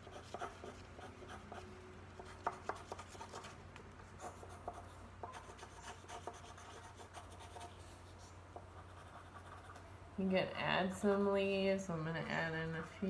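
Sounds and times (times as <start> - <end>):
pencil scratching on paper: 0.0 - 3.5, 4.2 - 9.9.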